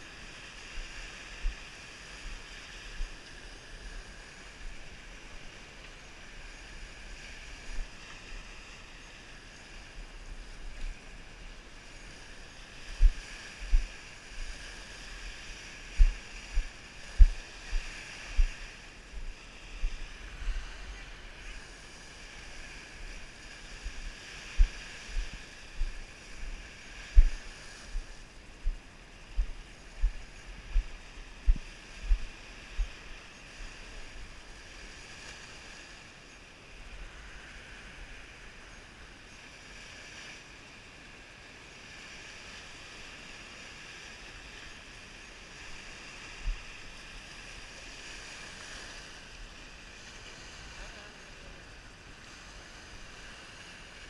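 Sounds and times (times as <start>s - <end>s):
waves washing on pebbly shore: 0.0s - 38.6s, 41.6s - 54.0s
light wind: 0.0s - 54.0s
footsteps on sandy path: 12.3s - 21.2s, 22.8s - 33.1s.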